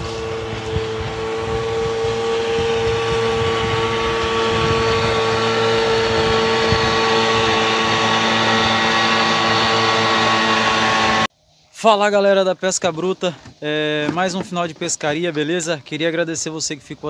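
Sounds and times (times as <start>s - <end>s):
motor running steadily: 0.0s - 11.3s.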